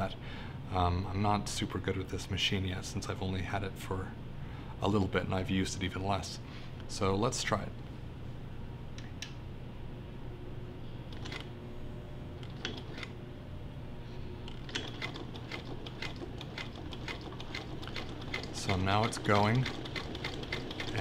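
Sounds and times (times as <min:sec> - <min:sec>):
sewing machine ticking: 0:14.6 - 0:21.0.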